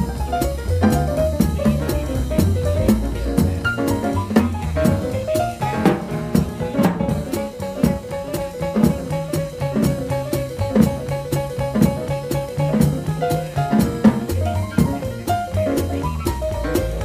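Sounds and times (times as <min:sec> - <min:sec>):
drum kit cymbal beat: 0:00.0 - 0:17.0
piano: 0:00.0 - 0:17.0
upright bass line: 0:00.0 - 0:17.0.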